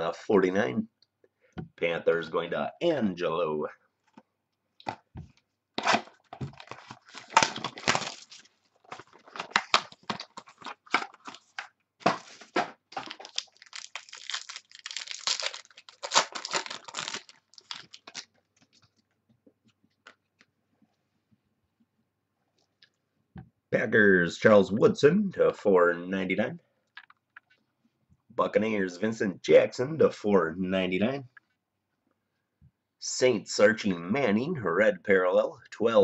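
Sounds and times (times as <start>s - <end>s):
card pack wrapper tearing: 5.8s - 18.4s.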